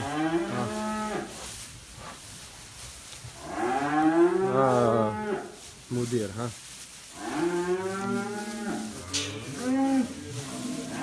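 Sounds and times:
calf mooing: 0.0s - 1.3s, 3.4s - 5.6s, 7.2s - 11.0s.

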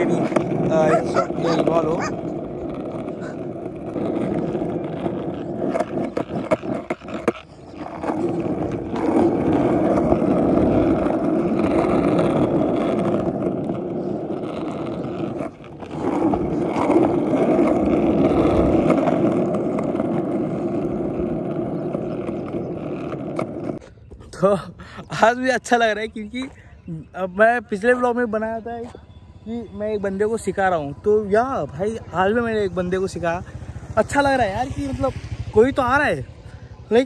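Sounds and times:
skateboard wheels rolling on asphalt: 0.0s - 37.0s.

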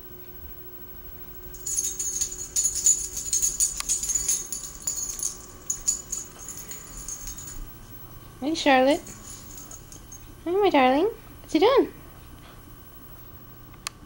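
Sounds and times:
jingle bell shaken rapidly: 1.5s - 7.7s, 8.6s - 10.6s.

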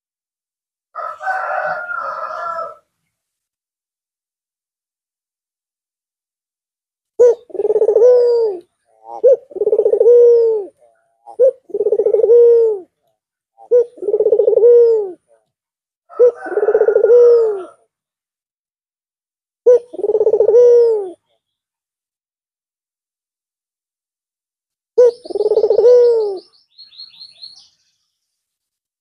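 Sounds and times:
dove cooing: 7.2s - 13.0s, 13.6s - 15.4s, 16.1s - 17.8s, 19.6s - 21.2s, 25.0s - 26.6s.

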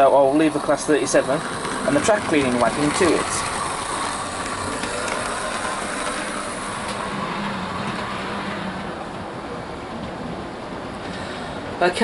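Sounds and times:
model train motor whirring: 0.0s - 9.4s
wheels rolling on rails: 0.0s - 12.0s.

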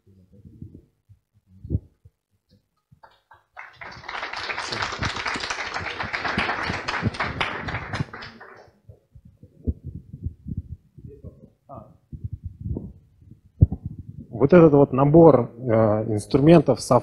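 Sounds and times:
audience applauding: 3.0s - 8.8s.

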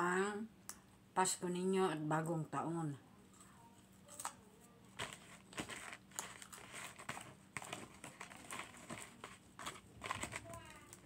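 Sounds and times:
cardboard box crinkling: 5.0s - 10.7s.

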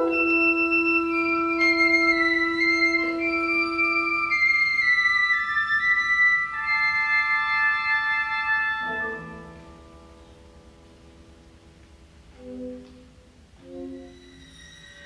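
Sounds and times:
wind band playing: 0.0s - 10.0s.

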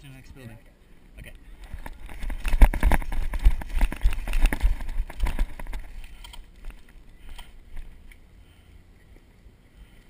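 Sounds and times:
running footsteps on dirt and grass: 1.7s - 7.0s.

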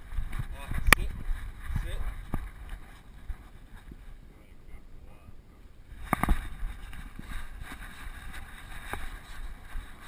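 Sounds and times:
wind noise: 0.0s - 10.0s
camera handling rumble: 6.0s - 9.2s.

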